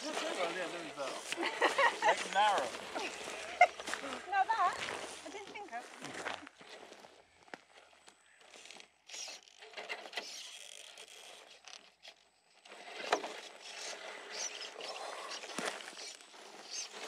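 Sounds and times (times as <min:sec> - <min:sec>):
tyres crunching on gravel: 0:00.0 - 0:08.9, 0:13.4 - 0:17.0.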